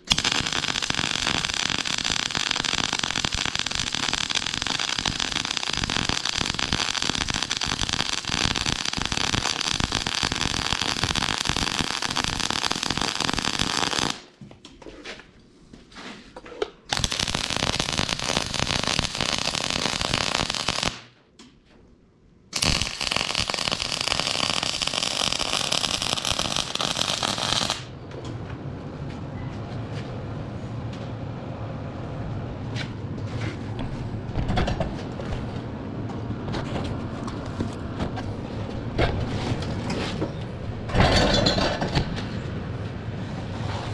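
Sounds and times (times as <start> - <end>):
welder arc crackling: 0.0 - 14.2, 16.9 - 21.0, 22.6 - 27.9.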